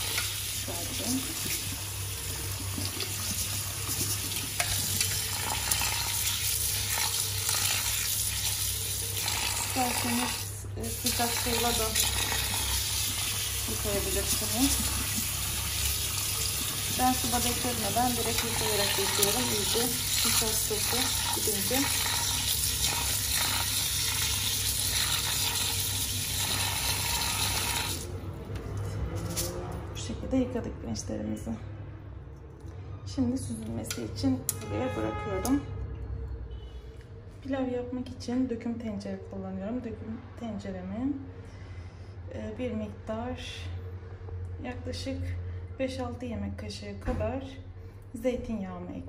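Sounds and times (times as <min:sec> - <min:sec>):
tap water running onto rice: 0:00.0 - 0:28.1
hand stirring wet rice: 0:01.0 - 0:06.0.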